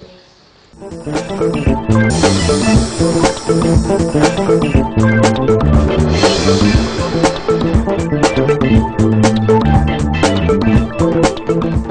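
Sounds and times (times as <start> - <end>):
steady drum beat: 0.8 - 11.0
bass line: 0.8 - 11.1.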